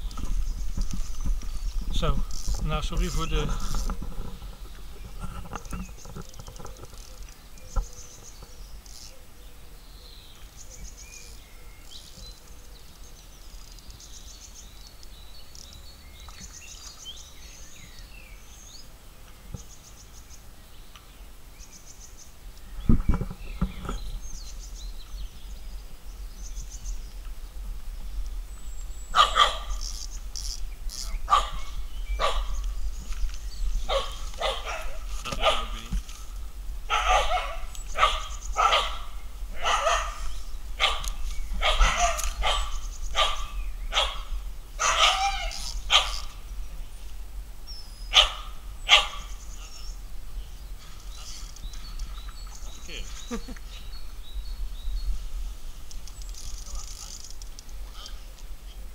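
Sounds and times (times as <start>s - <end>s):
dog barking: 29.2s - 29.7s, 31.3s - 32.5s, 33.9s - 35.8s, 36.9s - 44.2s, 44.8s - 46.2s, 48.1s - 49.3s
faint bird chirps: 47.7s - 55.2s.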